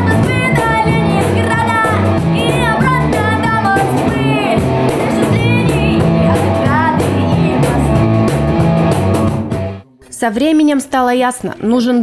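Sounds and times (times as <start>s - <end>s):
woman singing: 0.0s - 8.1s
band playing: 0.0s - 9.8s
double bass: 0.0s - 9.8s.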